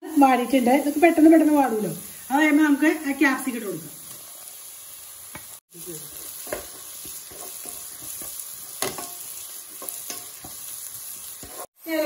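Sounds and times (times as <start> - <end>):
vegetables sizzling in oil: 0.0 - 12.0
spatula scraping a wok: 6.1 - 11.8.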